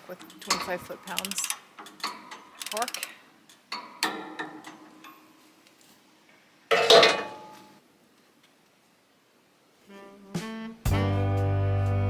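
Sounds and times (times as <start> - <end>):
metal clicks and clinks: 0.1 - 5.2.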